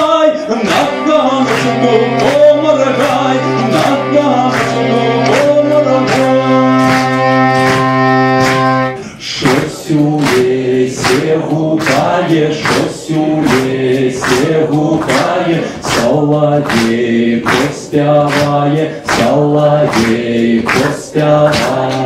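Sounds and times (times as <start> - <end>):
man singing unaccompanied: 0.0 - 7.6, 9.2 - 22.0.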